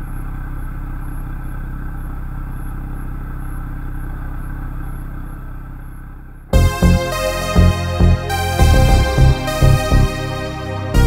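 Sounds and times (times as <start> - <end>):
sports car engine idling: 0.0 - 7.0.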